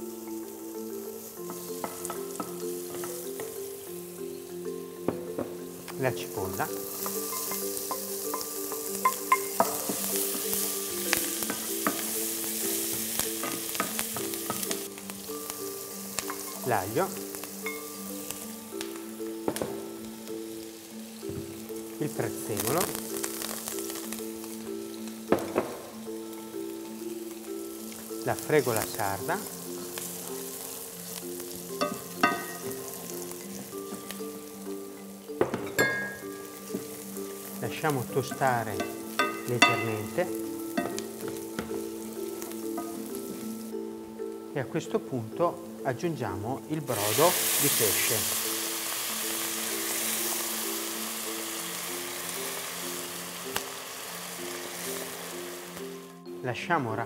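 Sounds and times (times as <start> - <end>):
onion sizzling in frying pan: 0.0 - 57.0
spatula knocking against pan: 1.4 - 3.6, 7.0 - 10.6.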